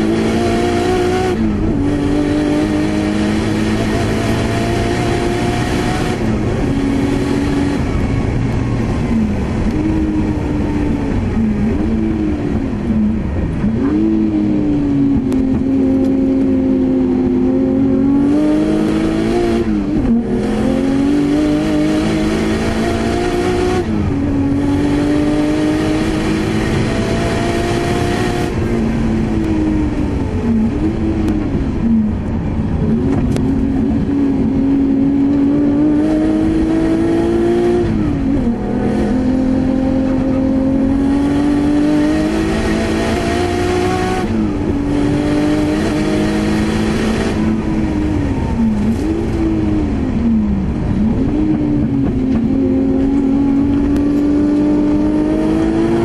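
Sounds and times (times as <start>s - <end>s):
car engine revving hard: 0.0s - 56.0s
road and wind noise: 0.0s - 56.0s.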